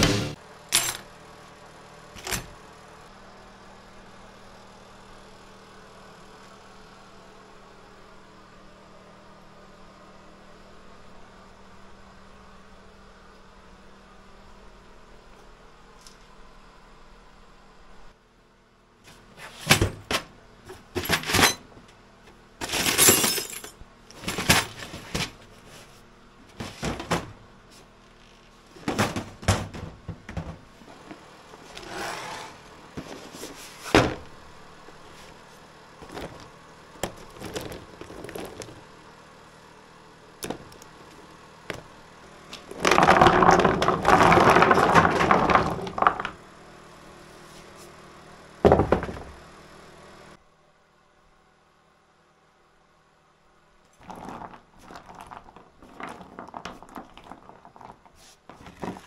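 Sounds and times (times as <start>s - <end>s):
plastic bins knocking and rattling: 0.0s - 0.4s, 24.1s - 25.4s, 26.5s - 27.4s, 28.7s - 31.2s, 32.9s - 34.3s, 36.0s - 38.9s, 40.4s - 40.8s, 42.6s - 46.4s, 48.6s - 49.4s, 58.5s - 59.0s.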